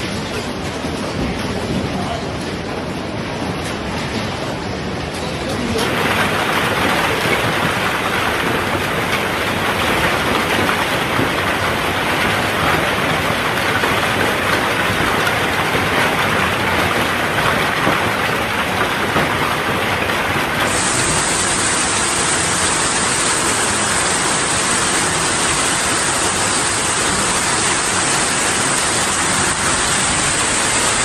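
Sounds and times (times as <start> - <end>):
heavy hail and rain: 0.0 - 31.0.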